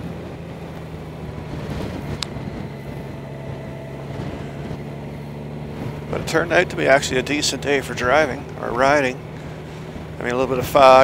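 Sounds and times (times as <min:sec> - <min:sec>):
motorcycle engine running: 0:00.0 - 0:11.0
road and wind noise: 0:00.0 - 0:11.0.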